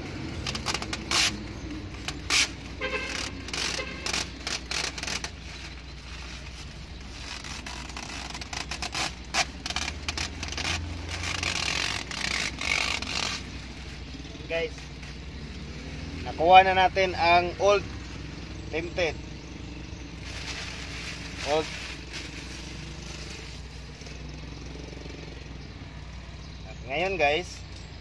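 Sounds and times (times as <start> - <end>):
tint film crinkling and scraping: 0.0 - 15.6, 20.0 - 24.3
spray bottle squirting: 0.4 - 5.4.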